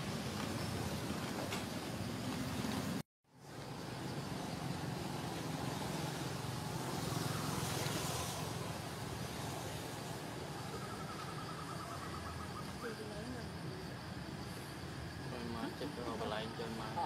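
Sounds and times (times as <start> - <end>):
outdoor rumble and hiss: 0.0 - 17.0.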